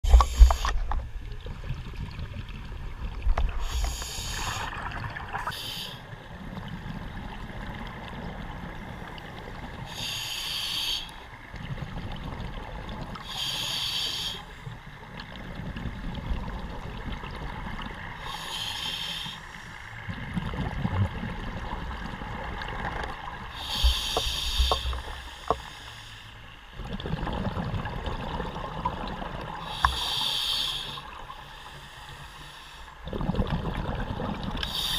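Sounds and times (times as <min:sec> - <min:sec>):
rumbling exhaled bubbles: 0:00.0 - 0:05.6, 0:20.1 - 0:23.4, 0:26.8 - 0:29.7, 0:33.0 - 0:34.7
regulator breath hiss: 0:03.6 - 0:04.8, 0:05.5 - 0:06.1, 0:09.9 - 0:11.3, 0:13.2 - 0:14.7, 0:18.2 - 0:19.9, 0:23.5 - 0:26.5, 0:29.6 - 0:33.0, 0:34.6 - 0:34.9.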